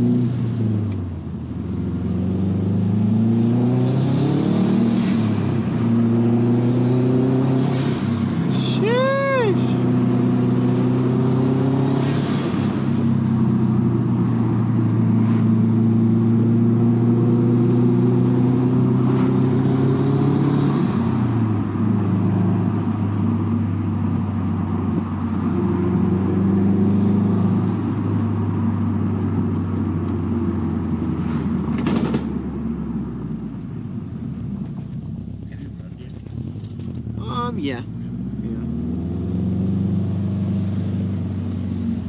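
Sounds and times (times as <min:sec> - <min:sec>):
car engine running: 0:27.8 - 0:42.0.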